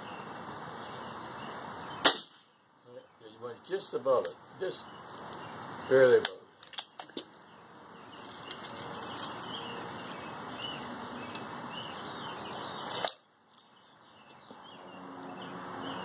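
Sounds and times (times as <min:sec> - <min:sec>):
steady hiss: 0:00.0 - 0:06.5
small birds chirping: 0:00.0 - 0:16.0.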